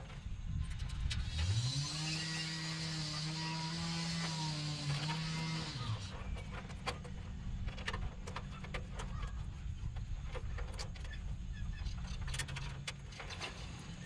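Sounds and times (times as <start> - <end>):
clicks and rustles of wiring: 4.2 - 14.0.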